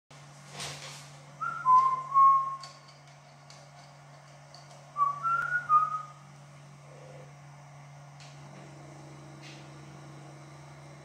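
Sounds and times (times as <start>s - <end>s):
steady low hum: 0.1s - 11.0s
person whistling: 1.4s - 2.7s, 5.0s - 6.2s.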